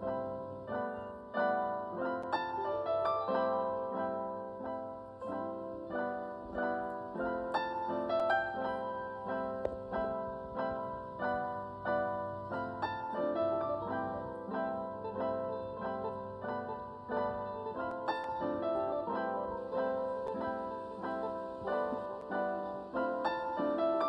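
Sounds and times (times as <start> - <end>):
light instrumental music: 0.0 - 24.0.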